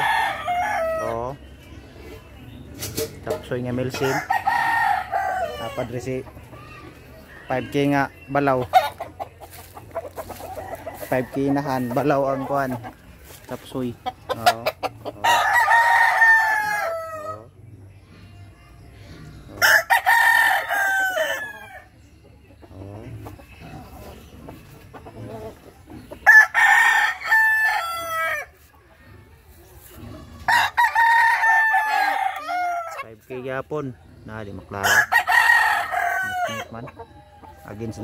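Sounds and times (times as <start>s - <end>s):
roosters crowing: 0.0s - 1.4s, 2.8s - 17.6s, 19.3s - 38.0s.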